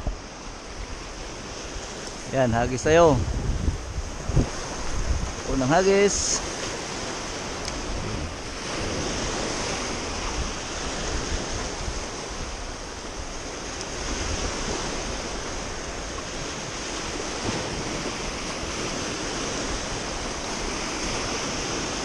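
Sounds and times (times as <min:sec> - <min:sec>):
waves washing over pebbles: 0:00.0 - 0:22.0.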